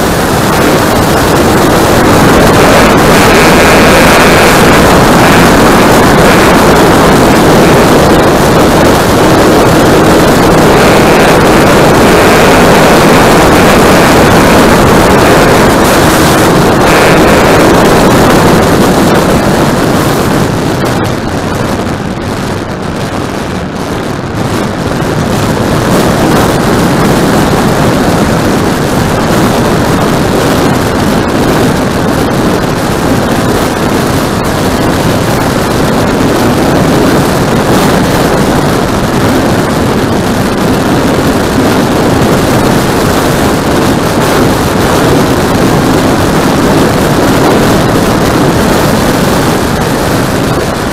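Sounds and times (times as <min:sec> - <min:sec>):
model airplane motor and propeller: 0:00.0 - 0:22.2, 0:22.9 - 0:50.9
wind noise on microphone: 0:00.0 - 0:50.9.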